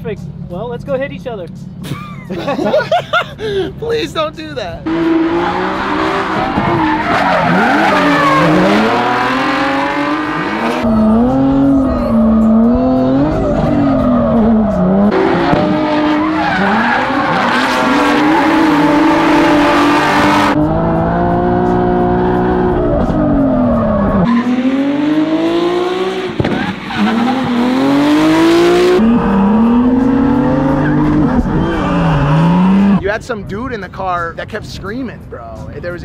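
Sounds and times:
car engine revving hard: 0:04.8 - 0:33.0
tyres squealing: 0:04.9 - 0:09.7, 0:13.6 - 0:20.0.

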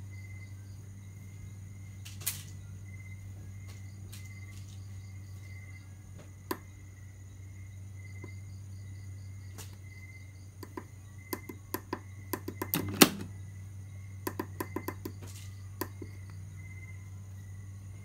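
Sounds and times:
low electrical hum: 0:00.0 - 0:18.0
push-buttons clicking: 0:10.6 - 0:13.4
relay mechanical clunk: 0:12.5 - 0:13.4.

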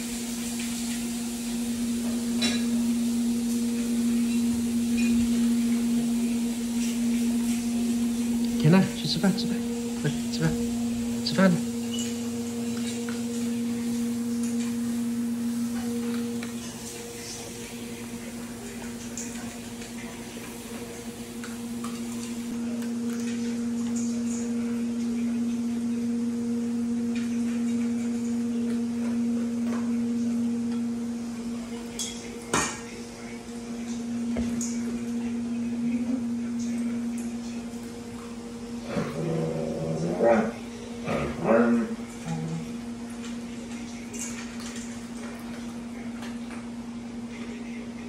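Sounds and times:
metal bowl clank: 0:00.0 - 0:20.6
steady low hum: 0:00.0 - 0:48.0.

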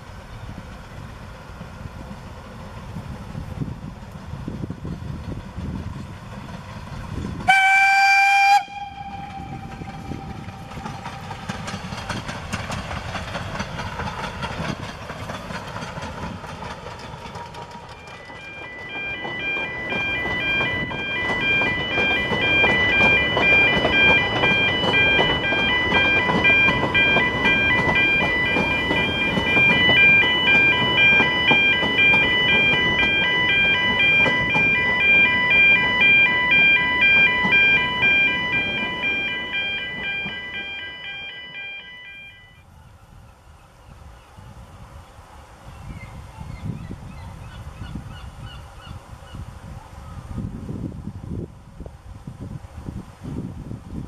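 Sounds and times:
train running along track: 0:00.0 - 0:54.0
steam locomotive whistle: 0:07.5 - 0:11.4
high repeating beeping: 0:17.9 - 0:42.6.

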